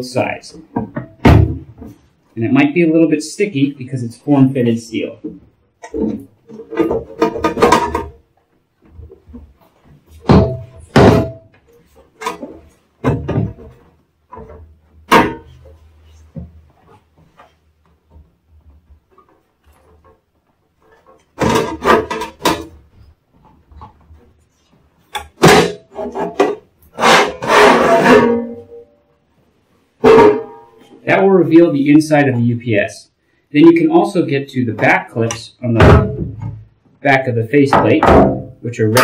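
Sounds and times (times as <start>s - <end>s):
metal panel clunks and knocks: 10.2s - 11.5s, 12.2s - 15.7s
metal panel rattling scrape: 25.4s - 28.7s.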